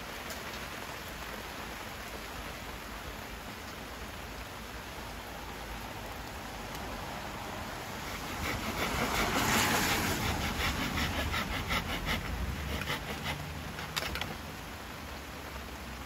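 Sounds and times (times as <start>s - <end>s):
rain hiss: 0.0s - 16.0s
hand saw cutting wood: 7.8s - 14.4s.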